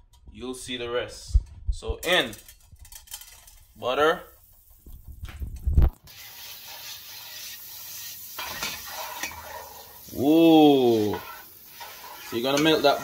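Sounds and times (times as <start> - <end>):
butter sizzling in a pan: 3.5 - 13.0.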